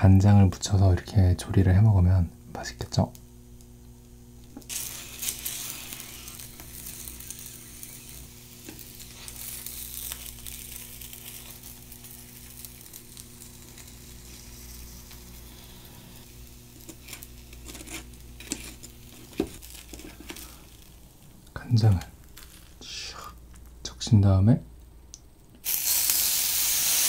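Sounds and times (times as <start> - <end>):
steady low hum: 0.0 - 25.6
soy sauce sizzling in pan: 4.6 - 21.3, 25.6 - 27.0.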